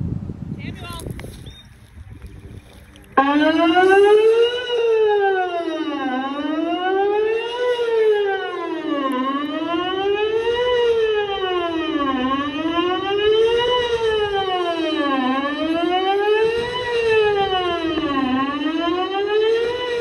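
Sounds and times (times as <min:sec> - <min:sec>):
electronic warning siren: 0:01.2 - 0:20.0.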